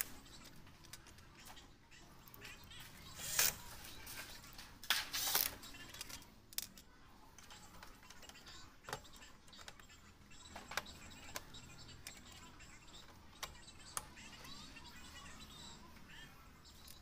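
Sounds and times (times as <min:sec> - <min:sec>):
tools clicking: 0:04.9 - 0:06.9.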